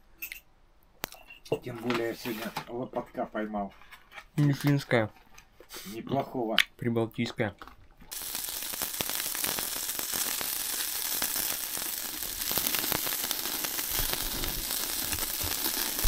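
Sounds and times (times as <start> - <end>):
meat sizzling on a grill: 8.1 - 16.0.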